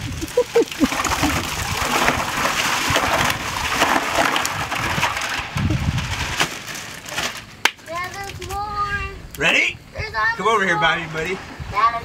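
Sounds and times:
ice cubes clattering into plastic tub: 0.7s - 8.6s.

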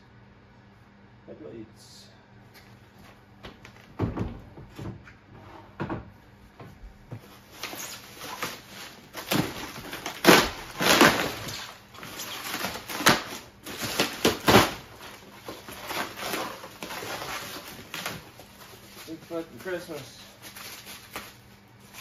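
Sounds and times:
foam and plastic wrap crinkling: 7.2s - 22.0s.

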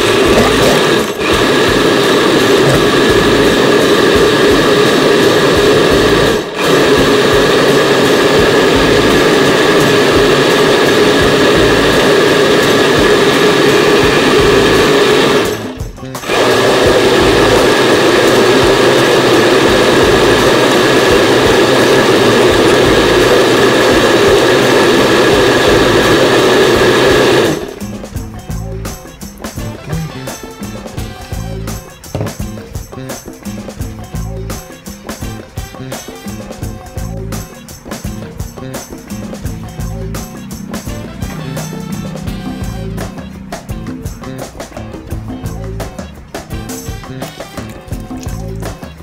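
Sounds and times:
electric blender motor running: 0.0s - 28.3s, 29.4s - 32.6s, 38.9s - 44.0s.

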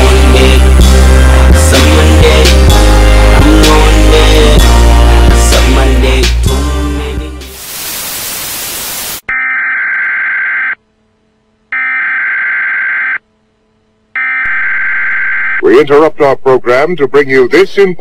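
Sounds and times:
music: 0.0s - 7.6s
tv static hiss: 7.6s - 10.8s
emergency alert buzzing beeps: 9.0s - 10.8s, 11.7s - 13.2s, 14.2s - 15.6s.

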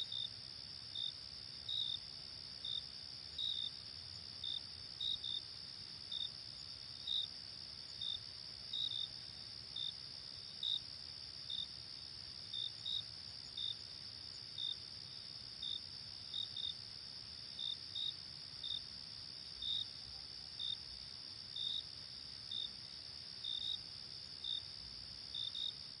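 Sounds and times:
cricket chirps: 0.0s - 26.0s
insect trill: 8.0s - 26.0s.

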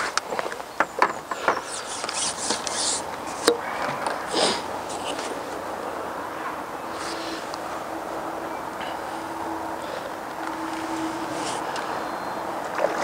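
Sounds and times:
rustling: 0.0s - 5.6s, 8.8s - 12.0s.

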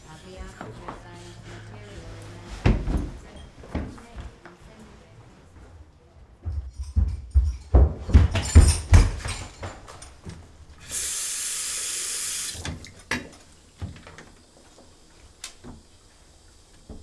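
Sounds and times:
heavy footsteps on hard floor: 2.0s - 4.4s, 5.5s - 10.5s
tap running water: 10.8s - 17.0s.

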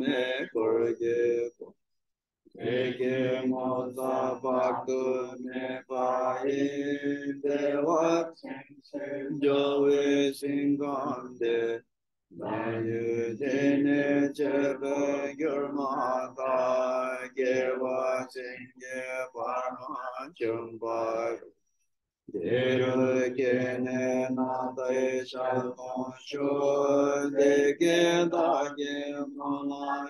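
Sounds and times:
man chanting a prayer: 12.9s - 21.5s.

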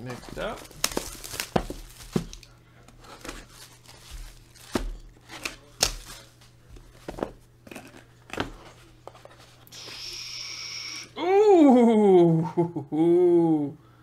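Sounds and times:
plastic shrink wrap crinkling: 0.0s - 8.1s
plastic wrap snapping: 0.3s - 2.5s, 3.2s - 6.3s.

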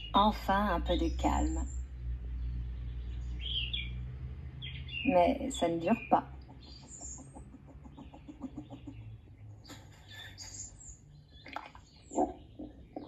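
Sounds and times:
high bird chirps: 4.6s - 13.0s.

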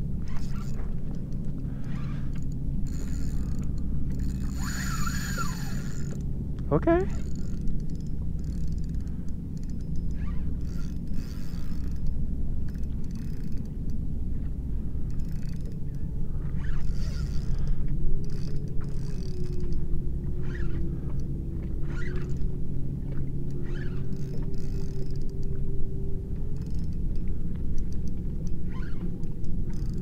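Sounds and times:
faint steady hum: 0.0s - 30.0s
wind rumbling on microphone: 0.0s - 30.0s.

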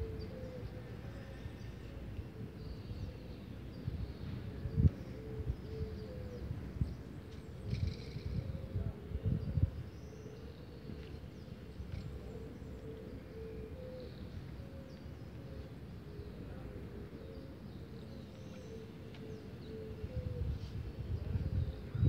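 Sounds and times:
wind rumble on microphone: 2.8s - 10.1s, 19.9s - 22.0s.

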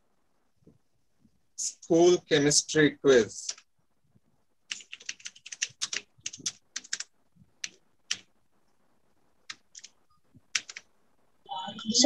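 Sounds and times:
typing on computer keyboard: 4.7s - 8.3s, 9.4s - 10.9s.

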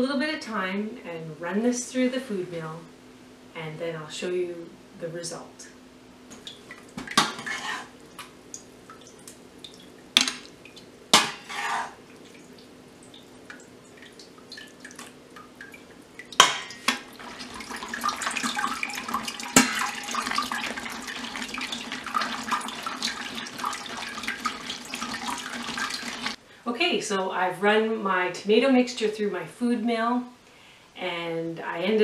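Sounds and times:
food mill scraping and squelching: 7.3s - 7.9s.

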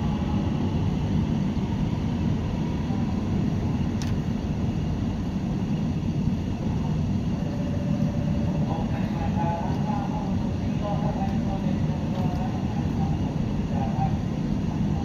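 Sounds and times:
train rumbling on track: 0.0s - 15.0s.

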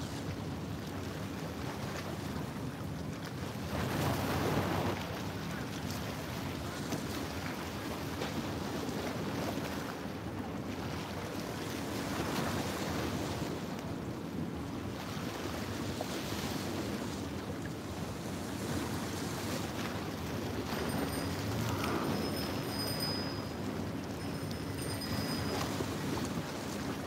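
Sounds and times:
waves splashing against rocks: 18.4s - 27.0s.

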